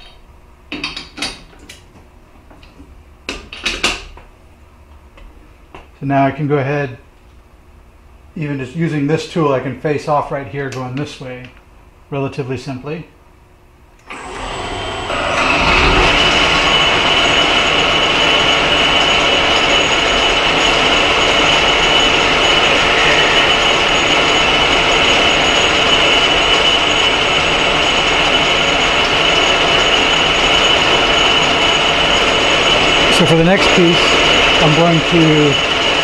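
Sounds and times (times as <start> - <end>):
metal lathe running: 14.1 - 36.0.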